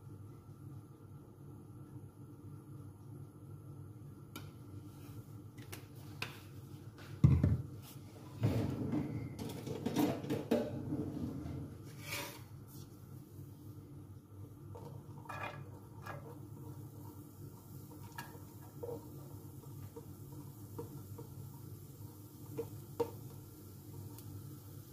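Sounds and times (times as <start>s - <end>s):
low steady hum: 0.0s - 24.9s.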